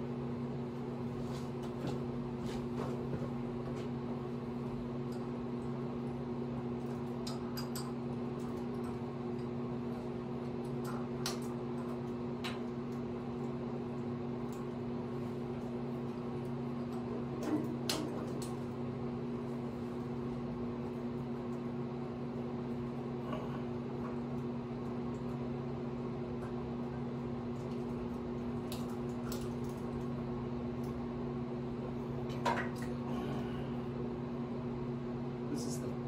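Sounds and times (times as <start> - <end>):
low electrical hum of machine: 0.0 - 36.0.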